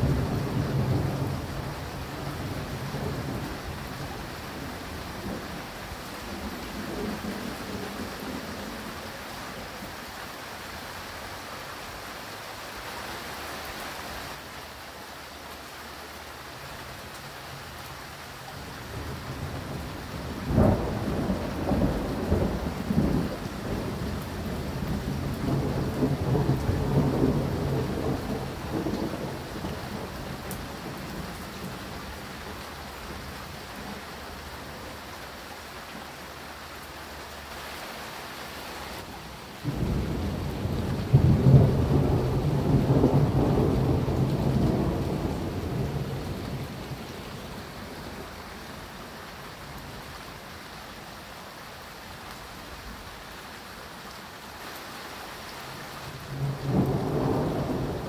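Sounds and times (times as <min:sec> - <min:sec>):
steady rain: 0:00.0 - 0:58.0
thunder rolling: 0:39.6 - 0:47.3, 0:56.3 - 0:58.0.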